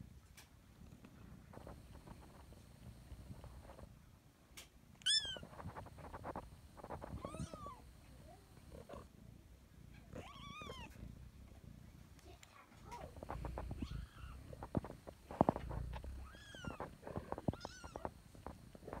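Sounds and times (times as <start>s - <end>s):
kitten meowing: 5.0s - 5.5s, 7.0s - 7.8s, 10.1s - 11.0s, 16.1s - 18.1s
soft rustles and taps: 10.6s - 19.0s.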